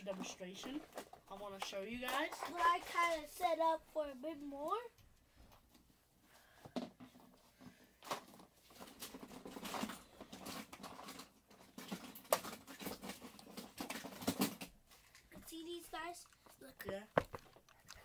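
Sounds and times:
plastic toys clicking and clattering: 0.0 - 3.7, 8.0 - 18.0.

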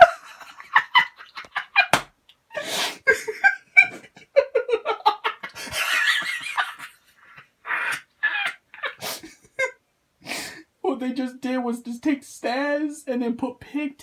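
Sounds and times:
person laughing breathily: 2.5 - 9.7.

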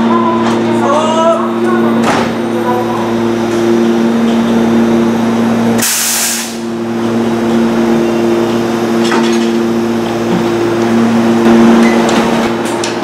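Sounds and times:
electric train humming: 0.0 - 13.0
compressed air hissing: 5.8 - 6.7.

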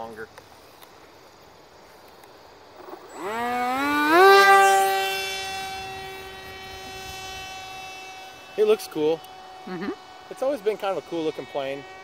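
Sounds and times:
electric motor propeller whine: 2.6 - 12.0.

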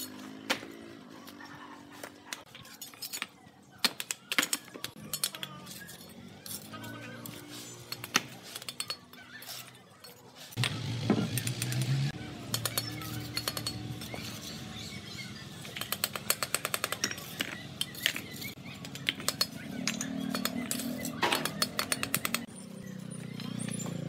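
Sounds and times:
bricks clinking and knocking: 12.5 - 14.5, 15.6 - 22.5
trowel tapping bricks: 15.7 - 22.5.

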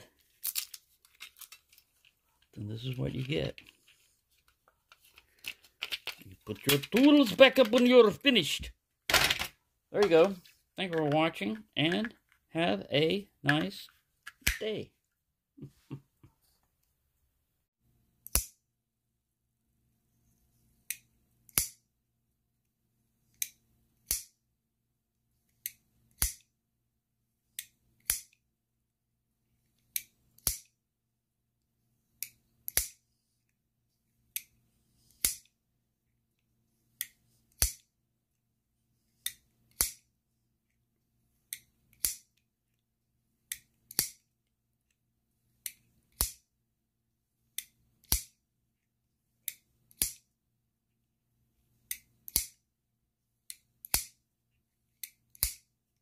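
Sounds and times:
knife opening and shutting clicks: 20.9 - 21.8, 32.2 - 33.0, 39.2 - 40.0, 41.5 - 42.2, 49.4 - 50.2, 51.9 - 52.6, 53.5 - 54.1, 55.0 - 55.6.

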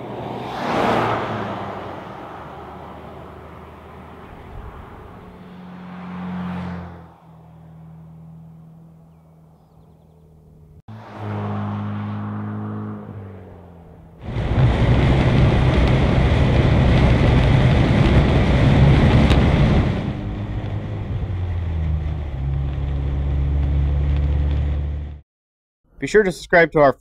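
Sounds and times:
car engine hum: 0.0 - 25.2
wind and road noise: 0.0 - 25.2
deep exhaust drone: 14.2 - 25.2.

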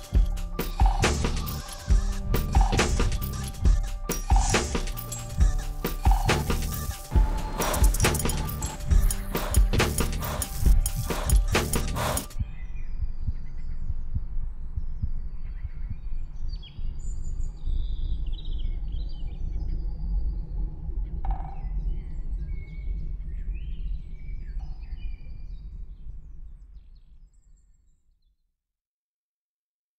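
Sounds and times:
birds chirping: 0.0 - 19.8
steady low rumble: 7.1 - 24.6.

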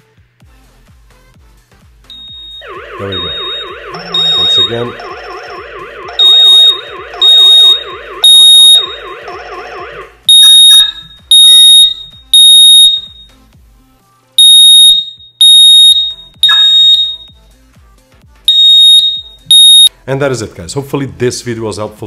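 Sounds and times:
smoke alarm beeping: 2.1 - 13.4, 14.4 - 17.4, 18.5 - 19.9
warbling alarm tone: 2.6 - 13.1, 14.4 - 17.3.

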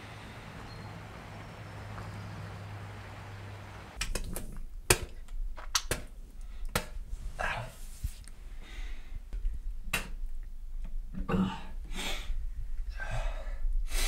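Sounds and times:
low hum: 0.0 - 4.0.

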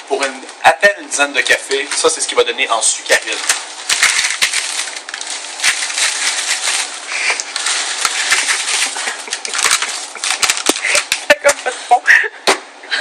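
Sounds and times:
paper sachets rustling and clicking: 1.4 - 2.4, 3.0 - 11.9
paper bag crinkling: 1.4 - 11.9.

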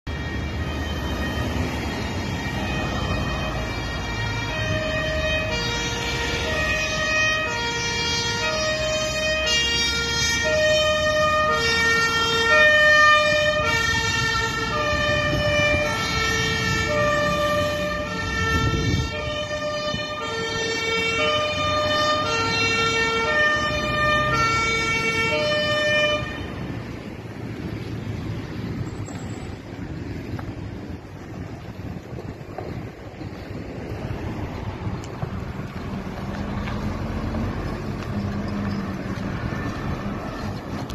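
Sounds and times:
two-tone siren: 0.0 - 26.8
engine and road rumble: 0.0 - 40.9.

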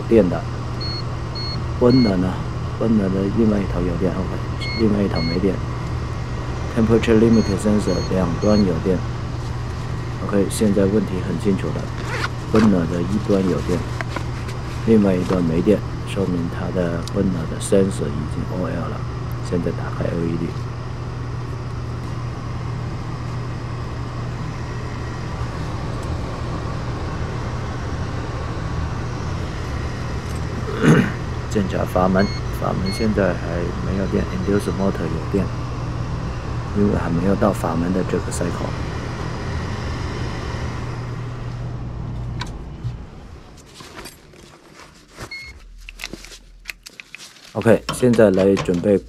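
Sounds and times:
fan winding down: 0.0 - 43.6
furnace motor humming: 0.0 - 43.7.

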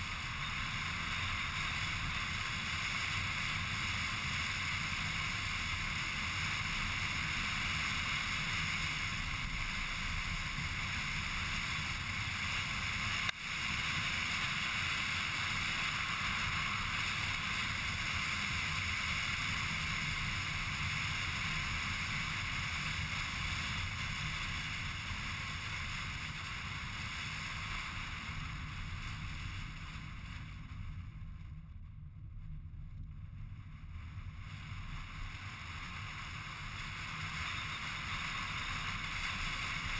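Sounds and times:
car driving road noise: 0.0 - 39.9.

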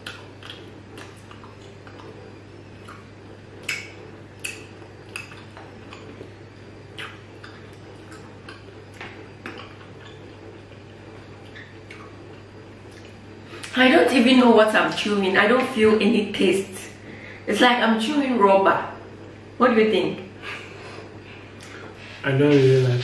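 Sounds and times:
people chewing candy: 0.0 - 13.7
low steady hum: 0.0 - 23.0.

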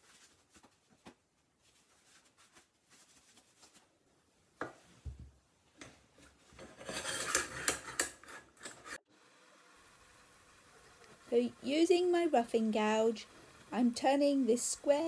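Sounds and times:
gloved hands rustling: 0.0 - 4.1
metal tool rest scraping: 6.2 - 9.0.

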